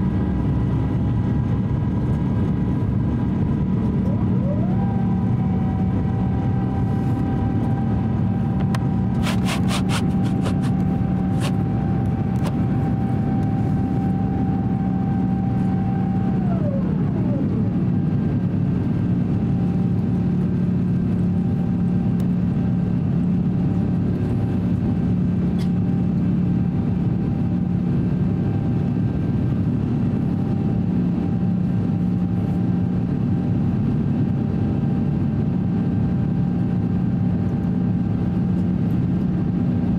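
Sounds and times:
gliding whine: 0.0s - 25.4s
aircraft cabin engine drone: 0.0s - 39.9s.

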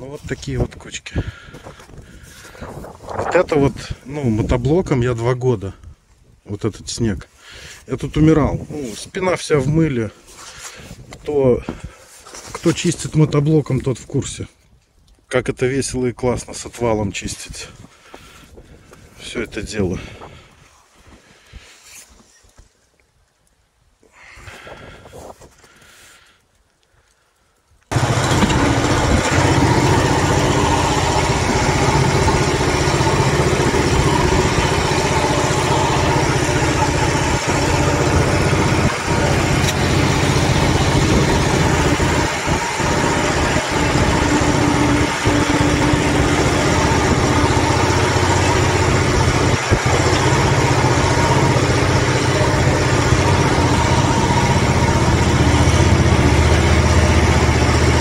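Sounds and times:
blade pushing wet snow: 27.9s - 58.0s
tractor engine running: 27.9s - 58.0s.

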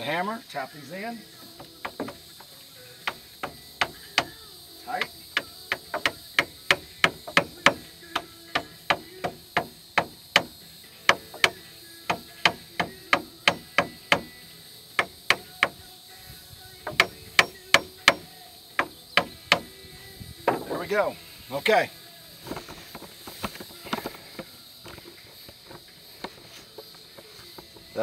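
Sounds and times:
hammer tapping wooden shims: 1.5s - 4.4s, 5.0s - 10.5s, 11.1s - 14.3s, 16.8s - 19.7s.

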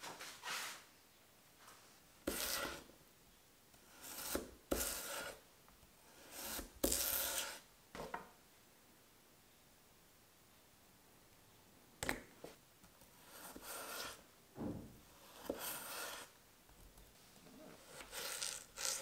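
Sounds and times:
knife slicing potato: 2.2s - 2.9s, 3.8s - 5.4s, 6.1s - 7.6s, 17.7s - 19.0s
knife scraping on cutting board: 2.3s - 2.9s, 3.9s - 5.4s, 6.1s - 7.6s, 13.2s - 14.2s, 15.2s - 16.3s, 17.7s - 19.0s.

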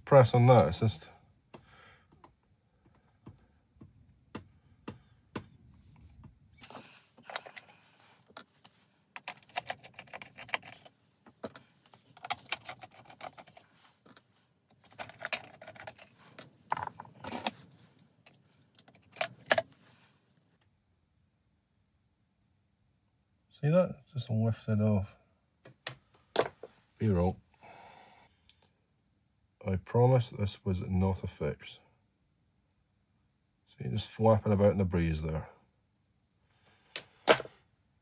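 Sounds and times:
hard plastic clicking and rattling: 9.2s - 17.6s.

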